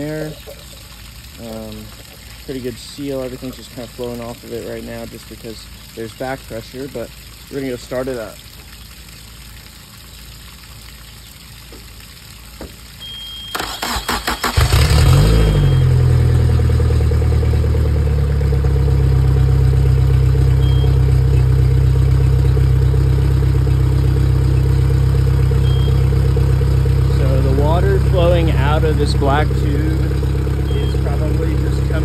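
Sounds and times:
faint water running: 0:00.0 - 0:32.0
outboard engine idling: 0:11.1 - 0:32.0
outboard starter cranking: 0:13.5 - 0:15.5
high steady beep: 0:25.6 - 0:26.0, 0:30.7 - 0:31.1.

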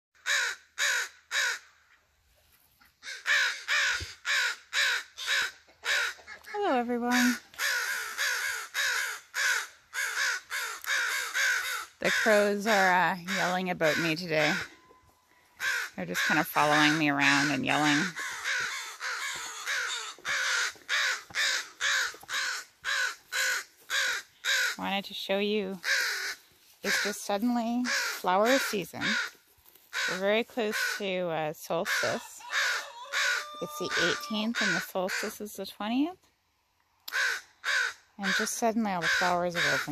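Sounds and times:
crows cawing: 0:00.2 - 0:01.9, 0:03.0 - 0:24.8, 0:25.8 - 0:31.0, 0:31.8 - 0:35.4, 0:37.1 - 0:39.9.

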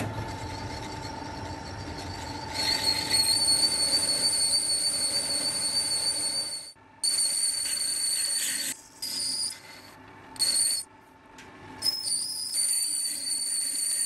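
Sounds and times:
lathe tool squealing: 0:00.1 - 0:06.8, 0:11.8 - 0:14.0.

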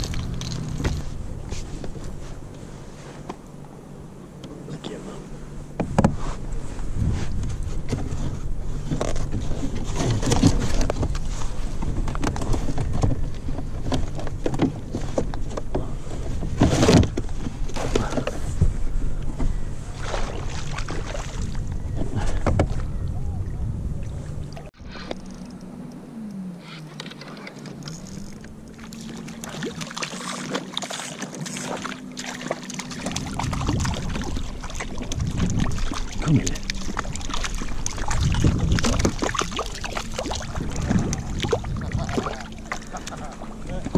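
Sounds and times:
low steady hum: 0:00.0 - 0:43.9
water lapping against kayak: 0:00.0 - 0:43.9
fish splashing into water: 0:20.0 - 0:21.6, 0:27.9 - 0:43.4.

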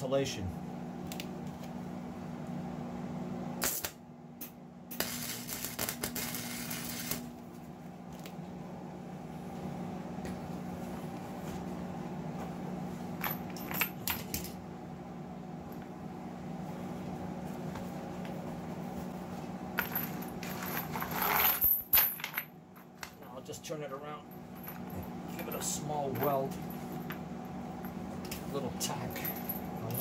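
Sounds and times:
constant low hum: 0:00.0 - 0:30.0
welding arc crackling and sizzling: 0:03.6 - 0:04.0, 0:04.9 - 0:07.4.

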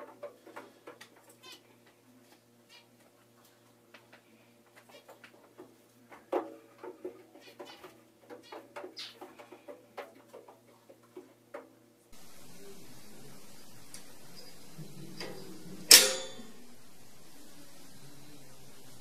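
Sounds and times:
faint steady hum: 0:00.0 - 0:19.0
steady hiss: 0:10.7 - 0:19.0.

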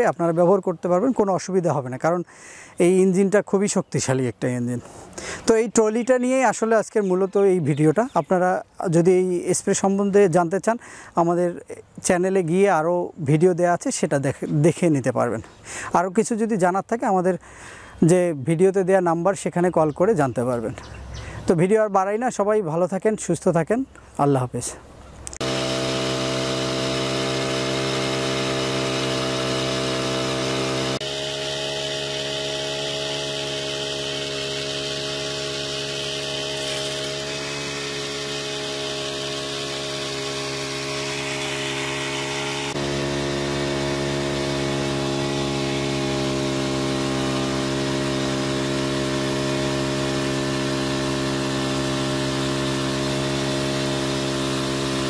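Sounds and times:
small petrol engine running: 0:25.4 - 0:55.0.

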